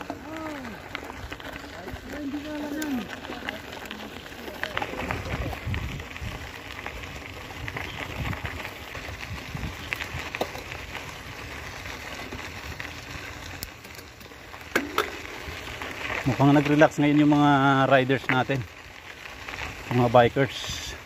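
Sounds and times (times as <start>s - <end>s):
bike tyres crunching on gravel: 0.0s - 21.0s
wind rumble on microphone: 4.8s - 10.4s.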